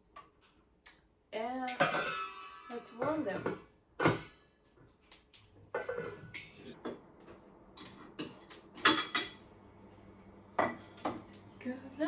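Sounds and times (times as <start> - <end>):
pan and utensils clattering: 1.7 - 4.5, 5.7 - 6.9, 7.7 - 9.4.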